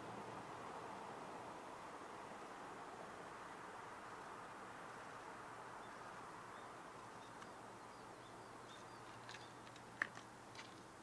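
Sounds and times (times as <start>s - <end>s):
soft outdoor hiss: 0.0s - 11.0s
faint high bird chirps: 5.8s - 9.6s.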